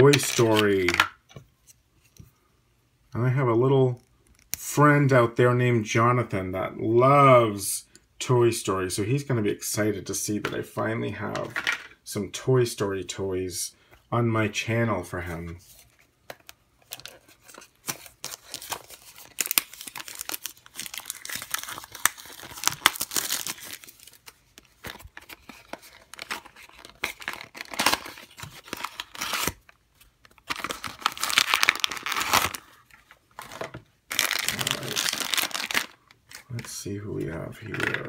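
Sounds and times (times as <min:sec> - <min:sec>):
foil bag crinkling: 0:18.1 - 0:24.2, 0:30.3 - 0:32.8, 0:33.4 - 0:36.3.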